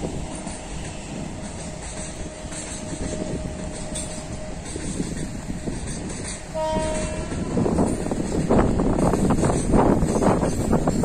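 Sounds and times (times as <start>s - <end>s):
horn sounding: 6.5s - 7.8s.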